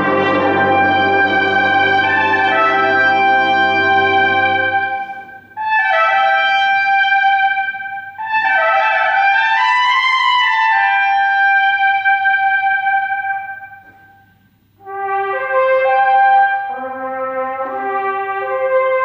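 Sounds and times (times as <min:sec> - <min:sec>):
brass band playing chords: 0:00.0 - 0:09.3, 0:14.8 - 0:19.0.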